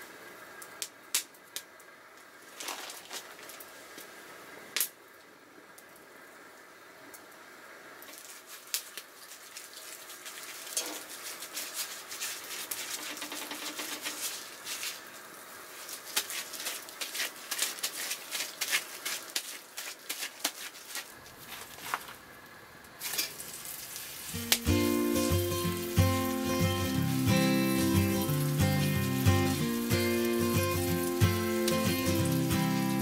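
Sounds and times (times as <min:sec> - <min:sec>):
campfire crackling: 0:00.0 - 0:33.0
hot oil sizzling in skillet: 0:08.0 - 0:19.8, 0:23.0 - 0:33.0
music: 0:24.4 - 0:33.0.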